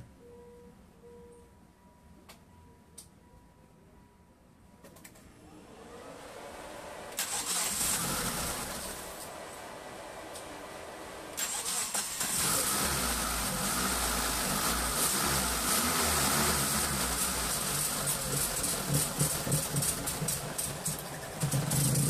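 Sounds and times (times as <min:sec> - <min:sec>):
engine cranking on starter: 0:05.0 - 0:22.0
engine idling: 0:05.5 - 0:22.0.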